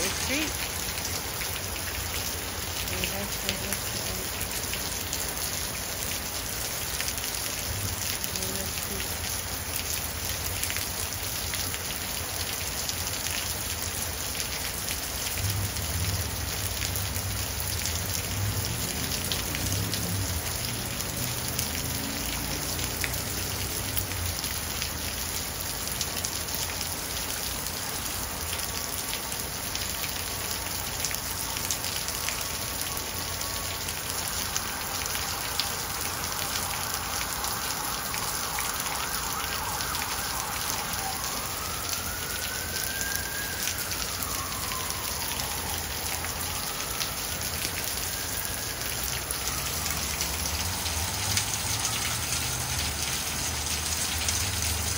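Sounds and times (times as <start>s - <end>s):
heavy rain splashing on stone: 0.0s - 54.9s
running water: 0.0s - 54.9s.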